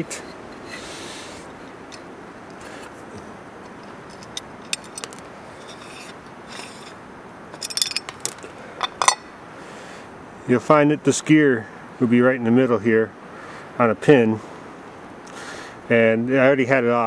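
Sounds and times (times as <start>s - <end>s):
metal parts clicking and scraping: 3.6s - 9.2s
metal cover clinking set down: 7.6s - 9.2s.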